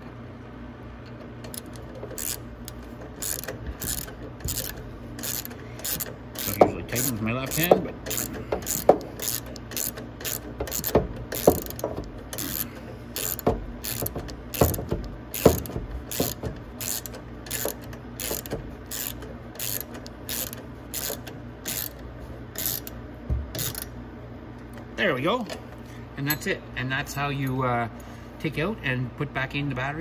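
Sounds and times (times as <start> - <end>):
ratchet wrench clicking: 1.4 - 23.9.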